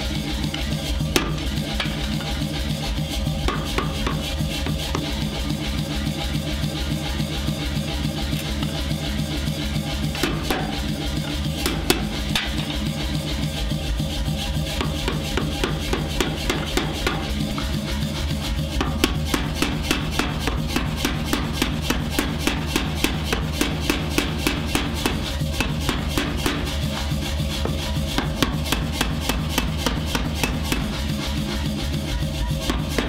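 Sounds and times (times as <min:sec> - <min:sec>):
background music with steady beat: 0:00.0 - 0:33.0
power hammer striking steel: 0:01.0 - 0:02.4, 0:03.5 - 0:05.3, 0:10.1 - 0:12.9, 0:14.8 - 0:17.8, 0:18.8 - 0:31.2, 0:32.7 - 0:33.0.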